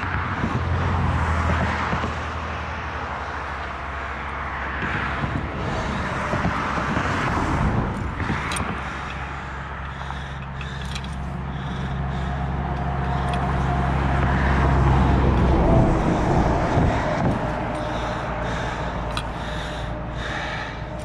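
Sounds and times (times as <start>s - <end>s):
vehicle engine humming: 0.0s - 21.0s
sharp clicks: 7.9s - 14.5s, 17.1s - 21.0s.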